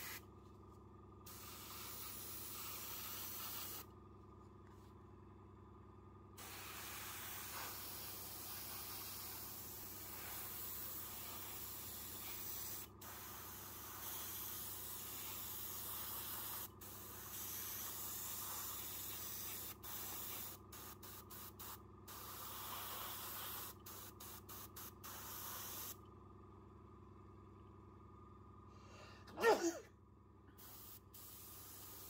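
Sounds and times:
airbrush spraying paint: 0.0 - 0.2, 1.3 - 3.9, 6.4 - 26.0, 30.6 - 32.0
steady low hum: 0.0 - 32.0.

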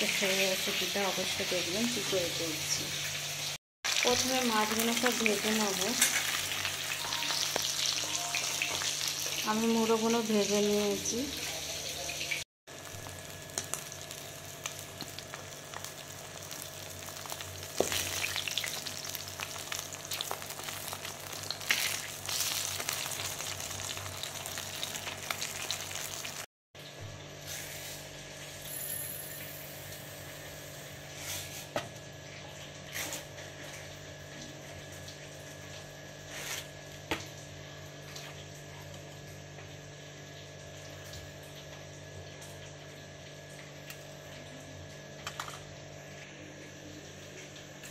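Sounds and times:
fish sizzling in hot oil: 0.0 - 26.5, 27.4 - 31.7.

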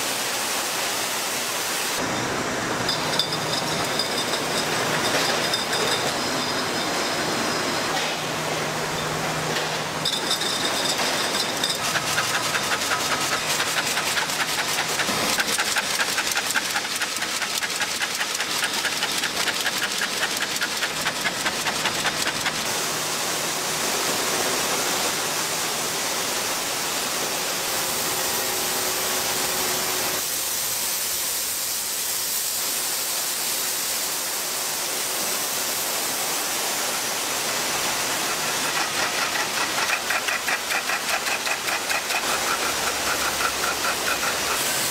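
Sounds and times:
bottling machinery hissing: 0.0 - 44.9
rapid even machine ticking: 11.8 - 22.6, 38.6 - 44.7.

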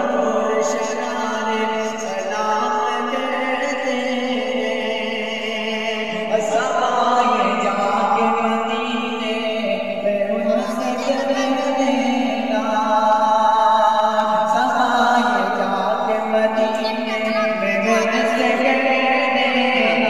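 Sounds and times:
man singing unaccompanied: 0.0 - 20.0.

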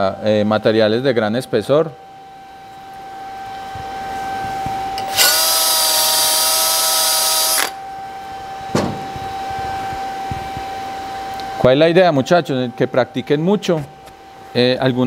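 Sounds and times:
drill with wire brush on steel: 5.0 - 7.8.

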